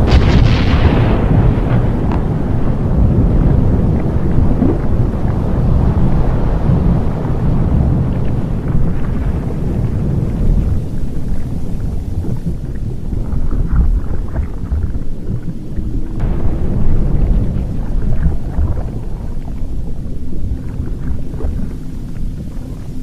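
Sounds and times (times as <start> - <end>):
crackles and pops: 0.0 - 23.0
volcano rumbling: 0.0 - 23.0.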